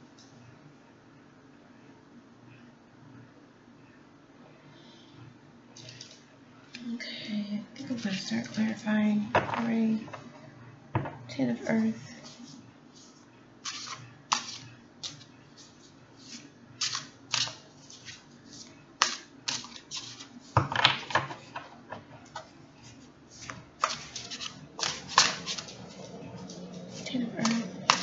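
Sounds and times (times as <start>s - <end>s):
cards being shuffled: 13.6s - 21.1s, 23.4s - 28.0s.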